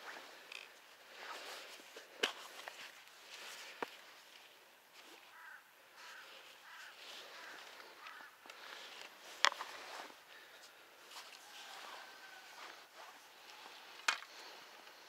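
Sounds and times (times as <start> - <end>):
faint crow caws: 3.6 - 15.0.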